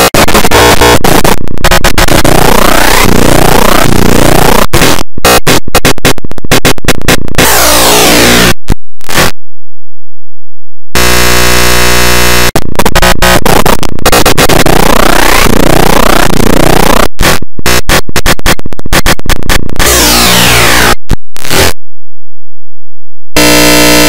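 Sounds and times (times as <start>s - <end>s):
buzzing tone: 0.0s - 9.4s, 11.0s - 21.8s, 23.4s - 24.0s
harsh distorted noise: 0.0s - 9.4s, 11.0s - 21.8s, 23.4s - 24.0s.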